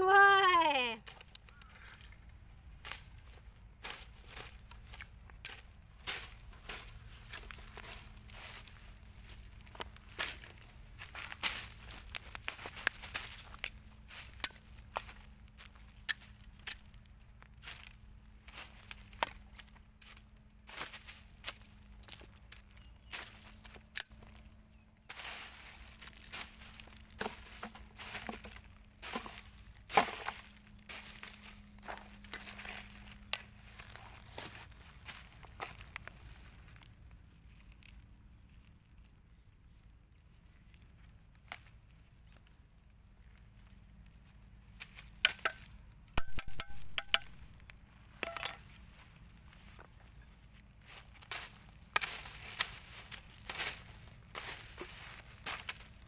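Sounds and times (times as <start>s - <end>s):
plastic bags crinkling underfoot: 2.7s - 24.4s, 25.1s - 45.2s, 46.7s - 56.0s.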